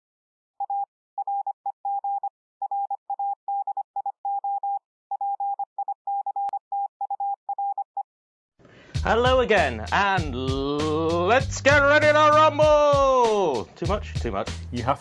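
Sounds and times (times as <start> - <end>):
morse code beeps: 0.6 - 8.0.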